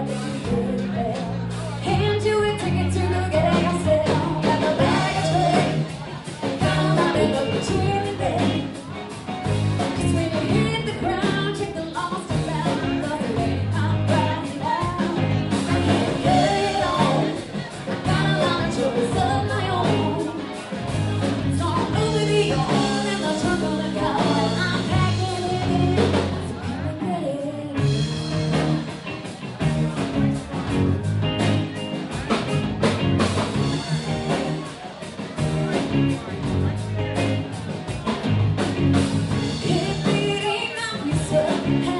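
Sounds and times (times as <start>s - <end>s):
woman singing: 0.0s - 8.9s, 9.8s - 20.6s, 21.4s - 28.1s, 39.5s - 41.9s
drums: 0.0s - 41.9s
electric guitar: 0.0s - 41.9s.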